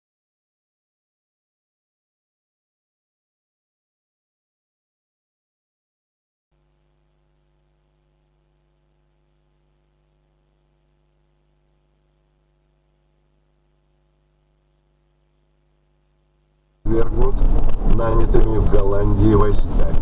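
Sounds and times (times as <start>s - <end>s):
faint steady hum: 6.5s - 20.0s.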